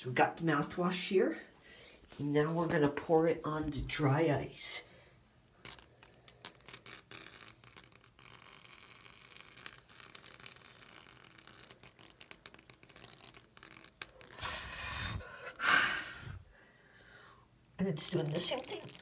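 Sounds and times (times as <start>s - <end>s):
dry ice crackling and fizzing: 5.6s - 14.5s, 17.8s - 19.0s.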